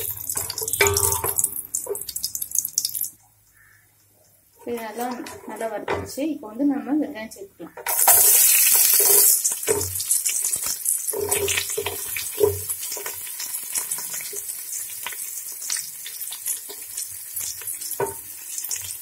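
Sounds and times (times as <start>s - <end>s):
onions sizzling in oil: 7.9s - 19.0s.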